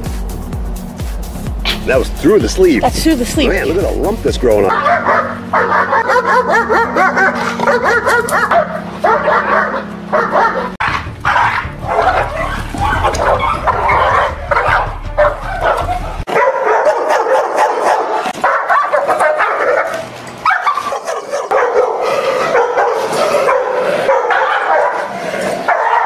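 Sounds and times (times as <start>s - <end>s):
dogs barking aggressively: 4.6s - 26.0s
low rumble: 6.7s - 16.3s.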